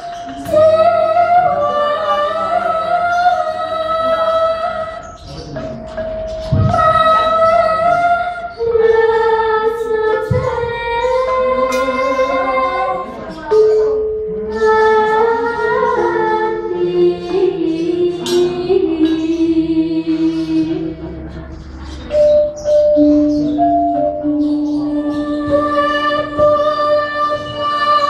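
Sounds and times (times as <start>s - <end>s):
woman singing long held notes: 24.5s - 28.0s.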